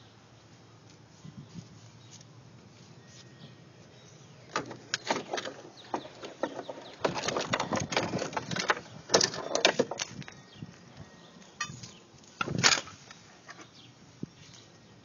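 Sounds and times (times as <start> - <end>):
handling clicks knocks and rustling: 4.5 - 10.4.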